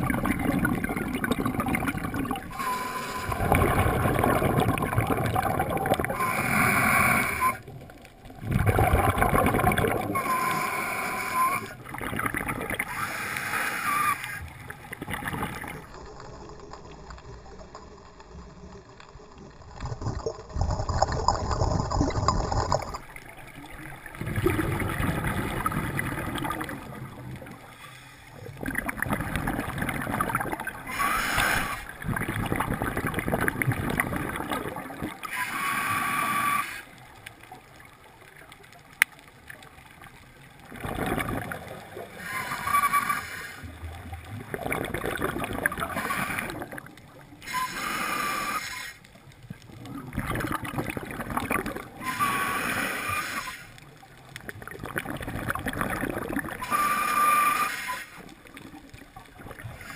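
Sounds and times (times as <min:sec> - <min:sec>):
bubbling exhalations underwater: 0:00.0 - 0:10.4, 0:14.9 - 0:23.2, 0:24.0 - 0:27.6, 0:28.6 - 0:35.2, 0:40.7 - 0:42.4, 0:43.9 - 0:47.0, 0:49.7 - 0:52.2, 0:54.4 - 0:57.4
regulator hissing inhalations: 0:47.6 - 0:49.0.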